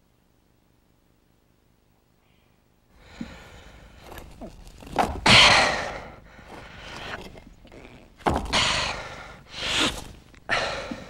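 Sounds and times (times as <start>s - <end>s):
man breathing heavily: 2.9s - 4.4s, 5.2s - 7.6s, 8.4s - 11.0s.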